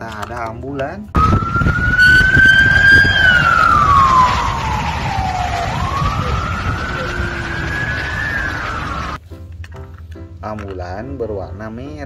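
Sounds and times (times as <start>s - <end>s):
emergency siren wailing: 1.2s - 9.2s
road traffic rumble: 1.2s - 9.2s.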